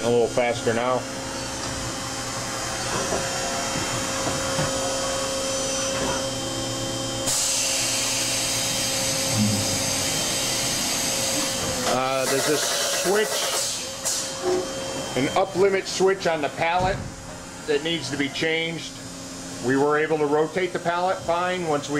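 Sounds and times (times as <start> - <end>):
machine spindle whine: 0.0 - 16.6.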